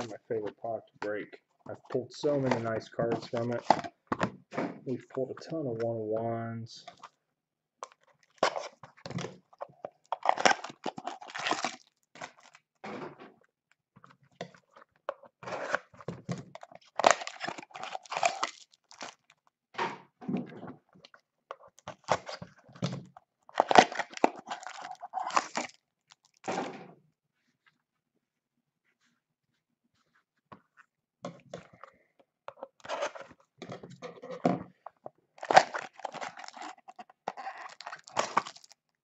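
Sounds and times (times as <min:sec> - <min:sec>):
foil wrapper tearing and crinkling: 0:10.0 - 0:12.6, 0:16.6 - 0:19.4, 0:23.5 - 0:26.5, 0:35.4 - 0:39.0.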